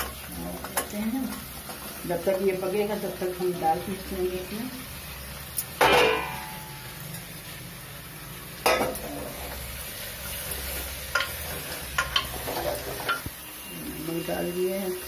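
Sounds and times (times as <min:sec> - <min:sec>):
vegetables sizzling in hot oil: 0:00.0 - 0:15.0
spatula scraping pot: 0:10.7 - 0:13.3.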